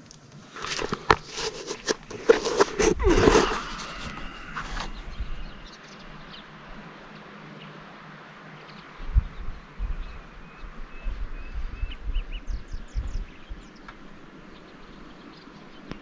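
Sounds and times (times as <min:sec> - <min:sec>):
camera handling knocks and rustling: 0:00.6 - 0:05.0.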